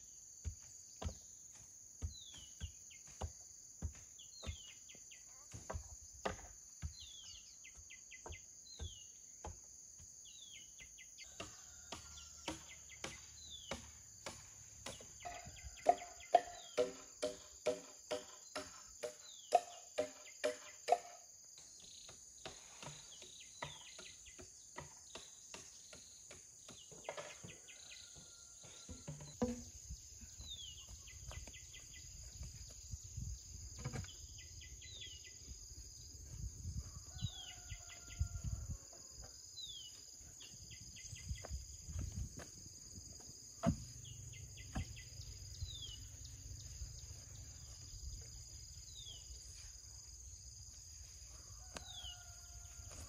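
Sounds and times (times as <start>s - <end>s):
sharp knocks and taps: 28.6s - 29.7s.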